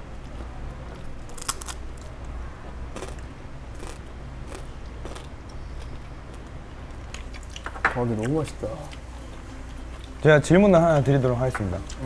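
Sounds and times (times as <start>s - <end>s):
crispy rice crunching: 1.3s - 1.8s, 3.8s - 5.3s.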